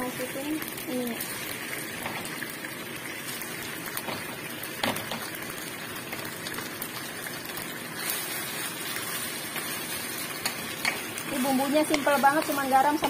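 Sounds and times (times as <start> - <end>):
vegetables sizzling in a wok: 0.0 - 13.0
wooden spatula knocking a pan: 4.0 - 5.3.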